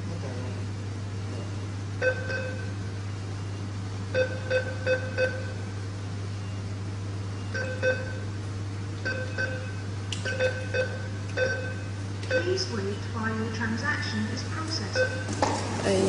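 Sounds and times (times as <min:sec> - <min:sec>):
keypad beeps: 0:02.0 - 0:02.7, 0:04.2 - 0:05.5, 0:07.5 - 0:08.2, 0:09.0 - 0:12.6, 0:14.9 - 0:15.4.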